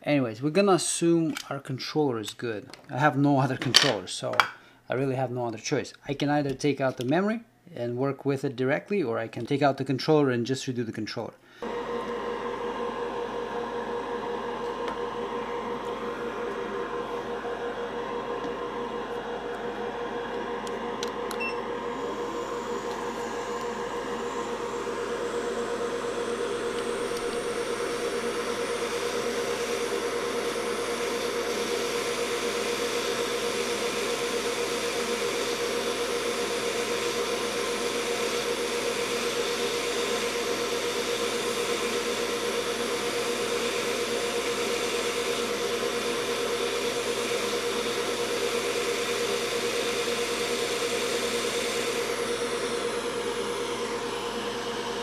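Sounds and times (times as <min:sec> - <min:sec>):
fan hum: 0:11.5 - 0:55.0
hot air blowing: 0:11.5 - 0:55.0.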